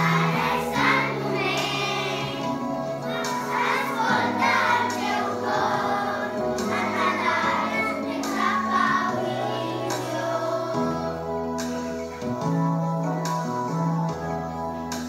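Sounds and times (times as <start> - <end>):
children's choir singing: 0.0 - 12.0
instrumental accompaniment: 0.0 - 15.0.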